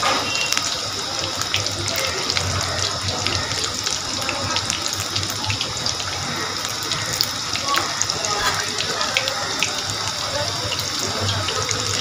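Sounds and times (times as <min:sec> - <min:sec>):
bread deep-frying in oil: 0:00.0 - 0:12.0.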